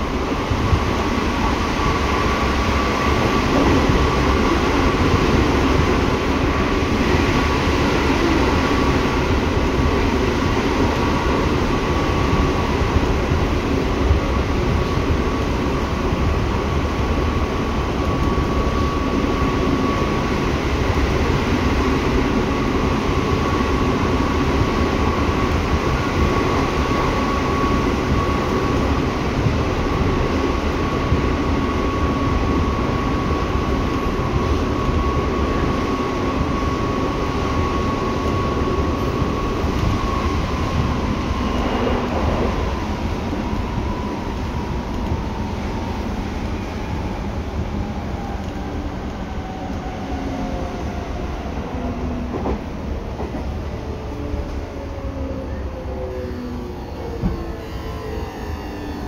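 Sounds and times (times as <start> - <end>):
train wheels rumbling: 0.0 - 59.0
high traction motor whine: 53.8 - 59.0.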